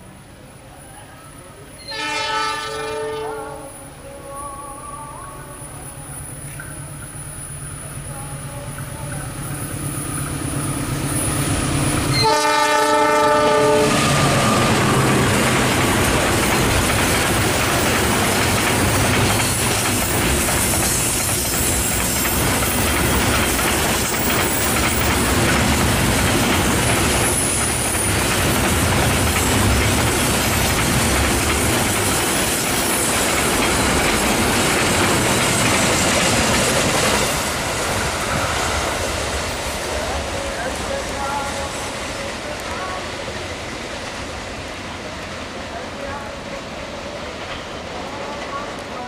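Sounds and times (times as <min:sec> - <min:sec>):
train wheels clattering over rail joints: 0:14.8 - 0:39.8.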